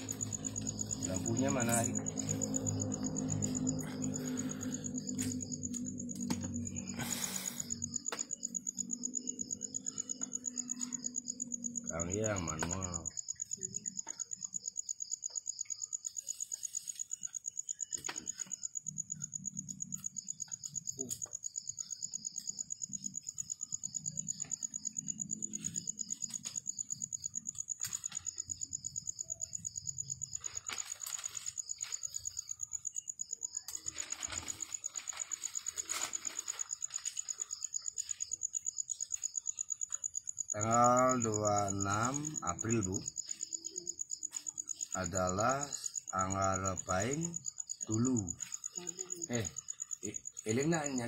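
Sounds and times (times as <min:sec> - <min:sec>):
pulsing insect chirp: 0:00.0 - 0:51.0
paper rustling and crinkling: 0:30.3 - 0:32.3, 0:33.7 - 0:37.6.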